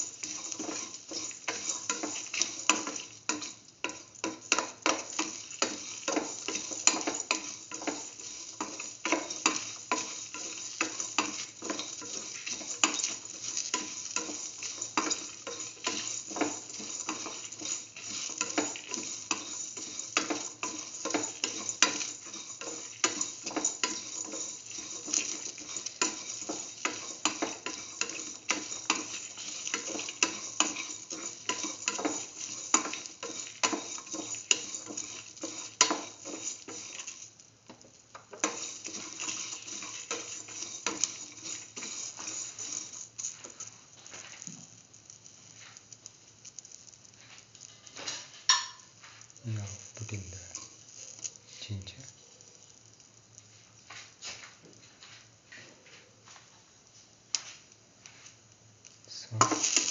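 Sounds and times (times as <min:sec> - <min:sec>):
spatula scraping a metal pan: 0:00.0 - 0:44.4, 0:59.4 - 0:59.9
onions sizzling in hot oil: 0:00.0 - 0:59.9.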